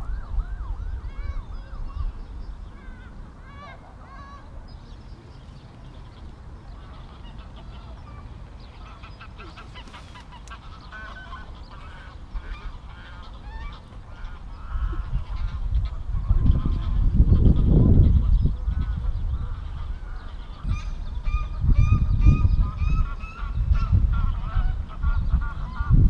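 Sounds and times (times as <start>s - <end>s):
wind rumble on microphone: 0.0s - 26.0s
geese honking: 5.8s - 21.6s, 22.2s - 26.0s.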